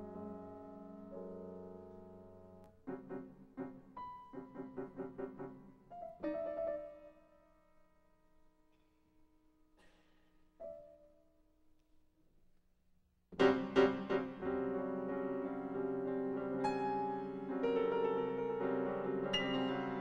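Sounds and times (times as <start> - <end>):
solo piano: 0.0 - 7.6, 13.4 - 20.0.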